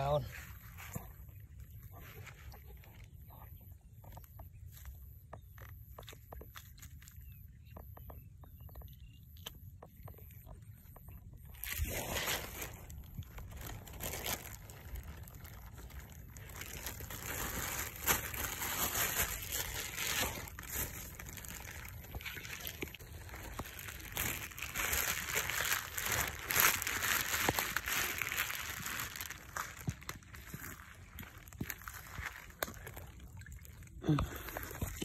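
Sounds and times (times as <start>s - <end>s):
dry grass rustling and crunching: 11.5s - 33.8s.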